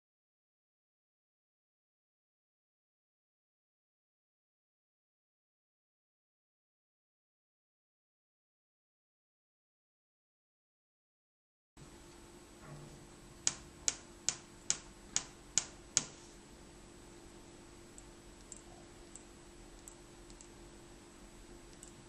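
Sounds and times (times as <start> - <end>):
faint hum: 11.8 - 22.0
toothpicks flicked clicking: 18.0 - 20.5, 21.7 - 22.0.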